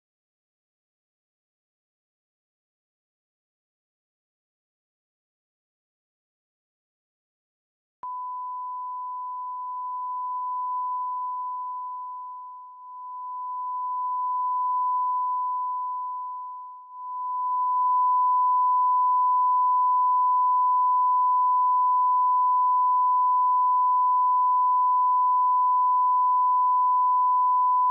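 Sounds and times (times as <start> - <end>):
steady pure test tone: 8.0 - 27.9.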